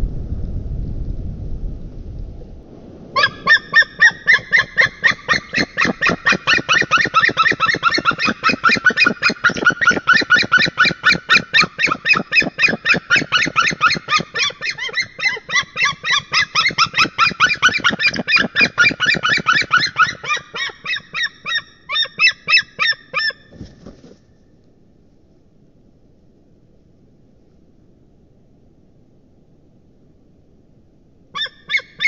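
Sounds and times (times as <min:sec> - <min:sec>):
eagles yelping calls: 0:03.2 - 0:23.5, 0:31.4 - 0:32.0.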